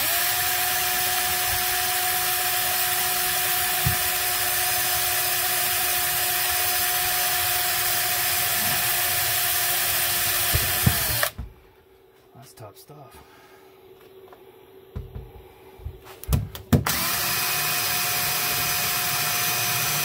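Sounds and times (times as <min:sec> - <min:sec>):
drill motor whining: 0:00.0 - 0:11.4, 0:16.9 - 0:20.0.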